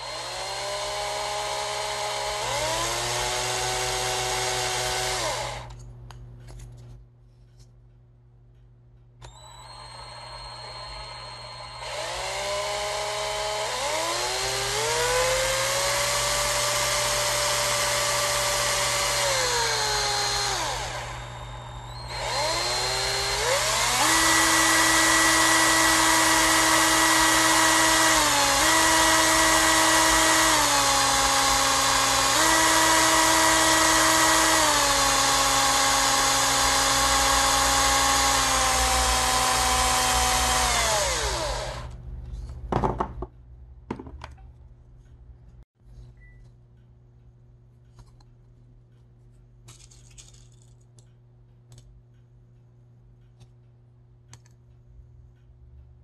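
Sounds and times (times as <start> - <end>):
small electric motor whining: 9.3 - 41.9.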